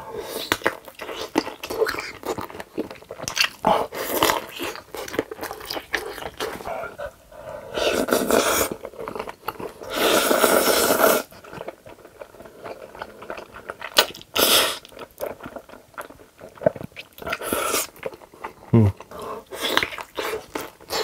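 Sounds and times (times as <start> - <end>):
person slurping noodles: 7.7 - 8.8, 9.8 - 11.3.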